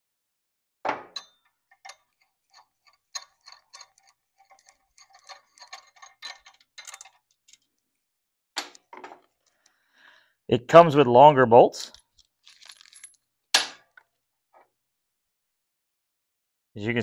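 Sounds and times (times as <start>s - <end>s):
sharp metal knock: 13.6s - 13.9s.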